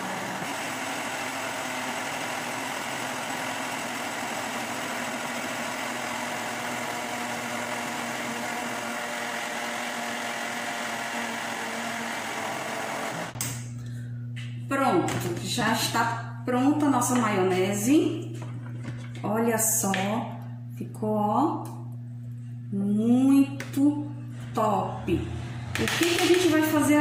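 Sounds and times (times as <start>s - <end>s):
blender motor running: 0.0s - 13.4s, 24.8s - 27.0s.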